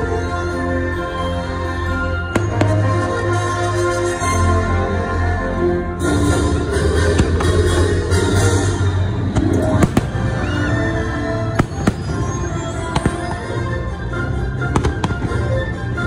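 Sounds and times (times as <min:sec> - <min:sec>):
loud music soundtrack: 0:00.0 - 0:16.0
fireworks bangs: 0:09.2 - 0:13.6, 0:14.7 - 0:15.5.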